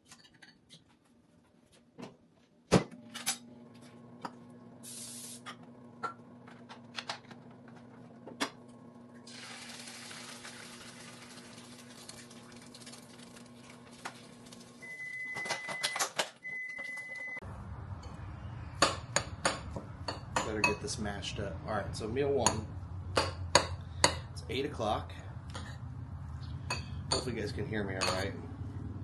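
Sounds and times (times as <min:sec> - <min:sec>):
cooking spray hissing: 0:04.8 - 0:05.5, 0:09.3 - 0:12.3
eggs sizzling in frying pan: 0:09.2 - 0:14.8.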